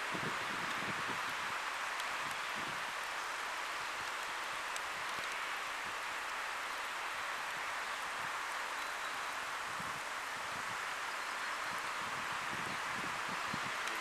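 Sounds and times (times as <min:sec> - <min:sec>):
rain falling: 0:00.0 - 0:14.0
faint ticks: 0:01.8 - 0:05.5, 0:13.8 - 0:14.0.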